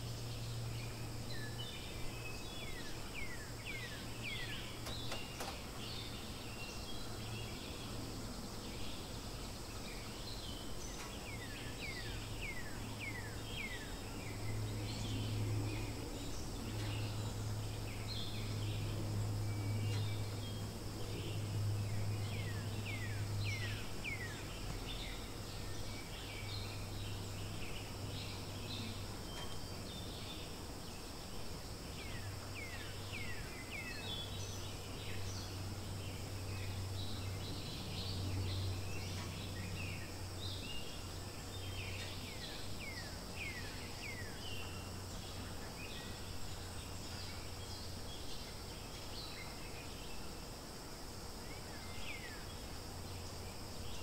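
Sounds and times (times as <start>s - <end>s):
high insect drone: 0.0s - 54.0s
bird chirps: 8.6s - 30.5s.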